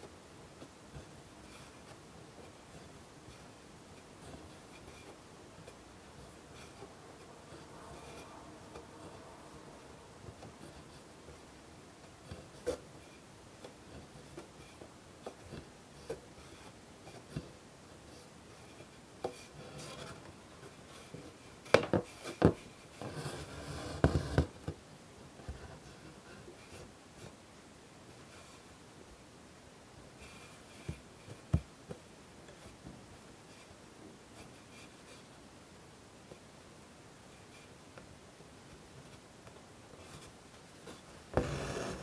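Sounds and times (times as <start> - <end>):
needle piercing fabric: 41.3 - 42.0.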